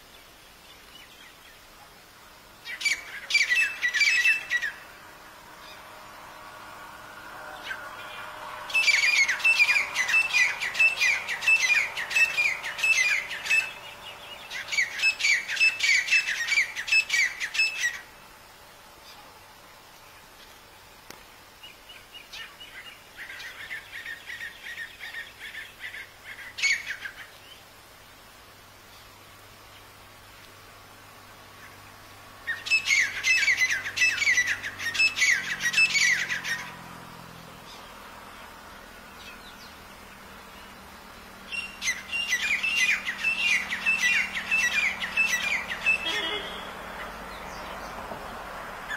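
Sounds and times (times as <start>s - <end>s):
francolin calling: 2.5s - 18.2s, 31.5s - 48.0s.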